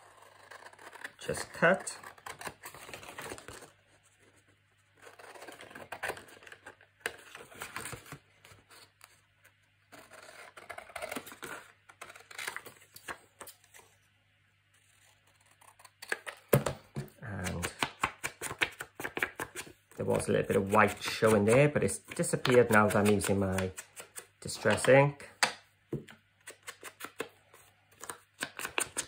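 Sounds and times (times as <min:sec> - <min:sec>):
scissors cutting card: 0:17.4 - 0:25.0.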